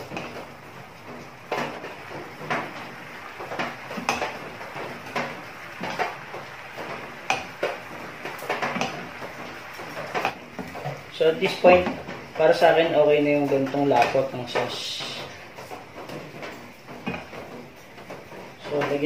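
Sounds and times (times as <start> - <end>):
sauce bubbling: 0.0 - 12.8.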